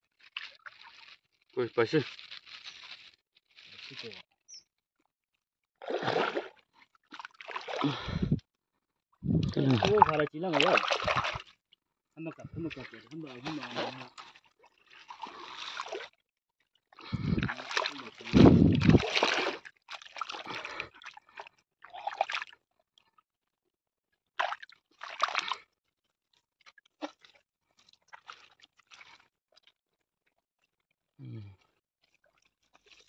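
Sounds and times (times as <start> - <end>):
hand squelching in wet mud: 5.8 - 8.4, 9.3 - 11.5, 12.6 - 16.1, 17.1 - 22.5, 24.4 - 25.6.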